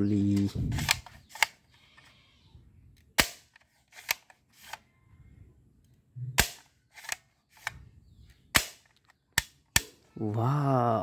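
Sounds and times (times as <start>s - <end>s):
toy gun plastic snaps: 0.3s - 1.7s, 3.0s - 4.8s, 6.4s - 7.8s, 8.5s - 10.0s.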